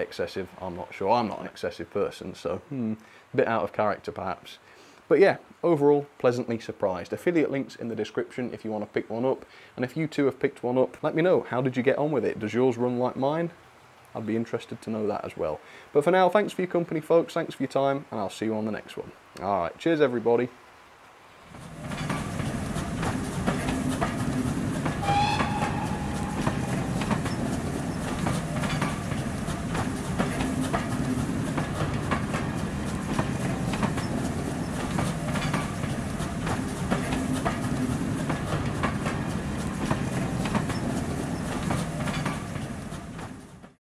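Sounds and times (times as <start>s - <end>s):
train wheels clicking over rail joints: 21.4s - 43.8s
train whistle: 25.0s - 27.7s.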